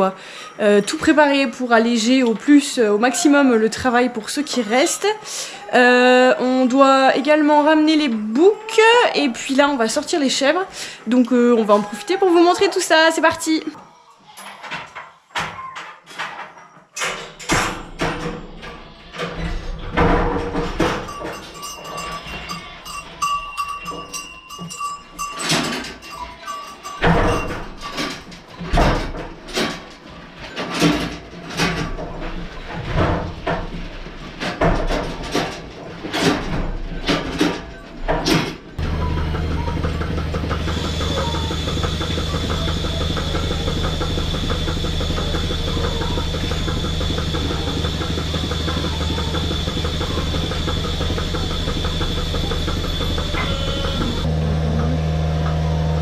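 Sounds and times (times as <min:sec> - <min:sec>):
hooves knocking on platforms: 0:19.9 - 0:29.8, 0:38.3 - 0:56.0
vacuum pump humming: 0:38.8 - 0:56.0.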